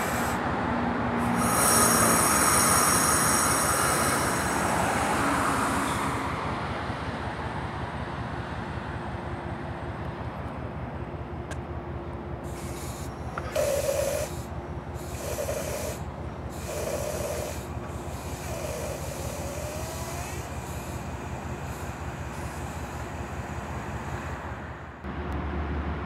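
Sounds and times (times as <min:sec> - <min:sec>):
short air hisses: 0:00.0 - 0:00.4, 0:01.2 - 0:06.0, 0:12.4 - 0:24.8
diesel train idling: 0:00.0 - 0:26.0.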